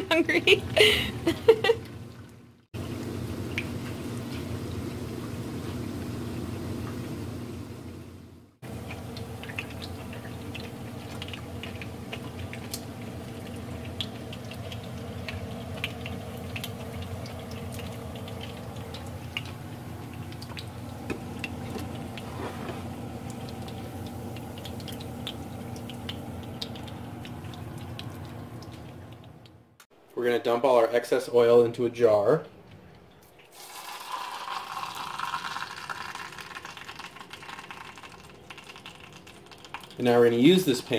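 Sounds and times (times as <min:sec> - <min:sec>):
grease popping and crackling: 0:08.6 - 0:29.6, 0:33.2 - 0:40.9
food sizzling in frying oil: 0:33.5 - 0:40.0.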